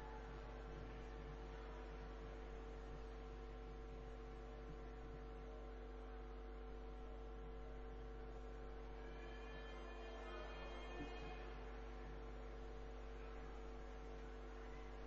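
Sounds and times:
electrical mains hum: 0.0 - 15.0
faint high steady tones: 6.9 - 15.0.

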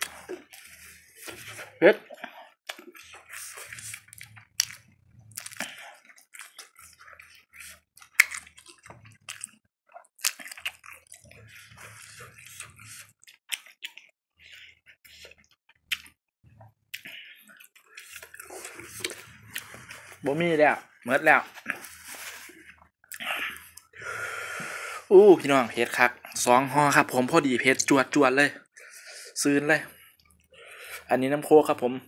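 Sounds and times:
breathy hisses through lips: 23.2 - 25.1.

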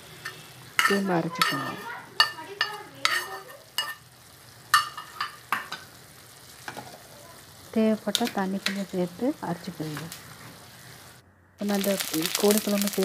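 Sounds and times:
metal spoon scraping a frying pan: 0.1 - 4.1, 4.7 - 5.8.

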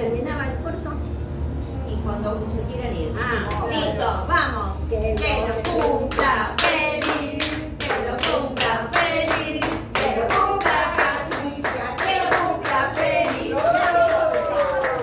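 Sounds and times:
women singing together: 5.1 - 14.6.

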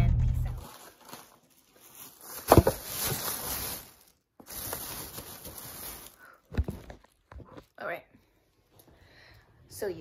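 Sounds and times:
plastic bag rustling: 0.5 - 7.8.

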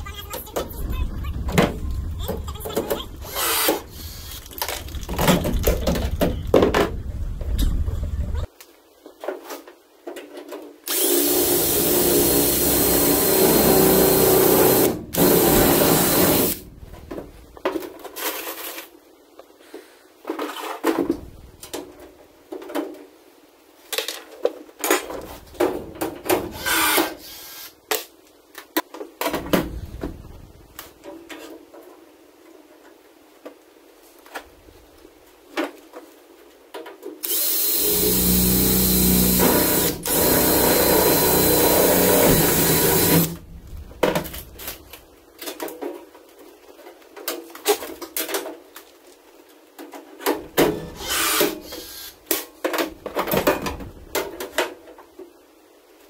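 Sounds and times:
cordless drill drilling metal: 3.2 - 4.1, 10.9 - 16.6, 26.6 - 27.6, 37.2 - 43.4, 51.0 - 52.0.

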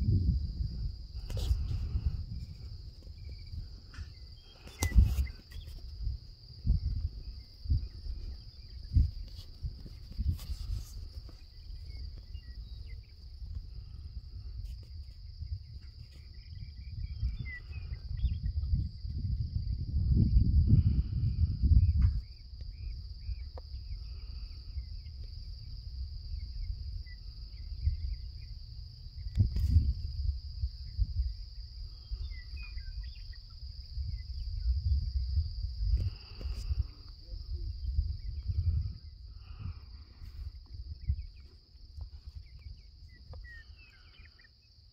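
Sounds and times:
low microphone rumble: 0.0 - 4.2
insects chirping: 0.0 - 44.9.

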